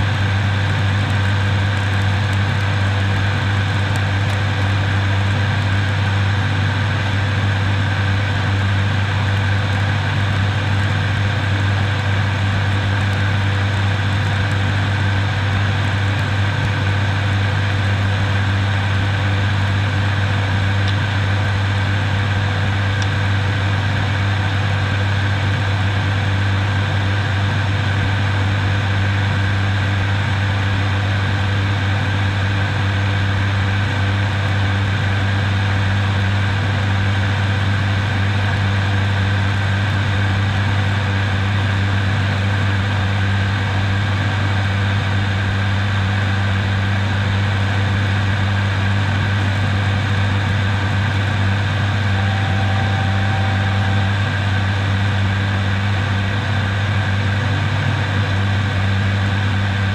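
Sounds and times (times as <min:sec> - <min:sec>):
propeller aircraft drone in cockpit: 0:00.0 - 0:59.9.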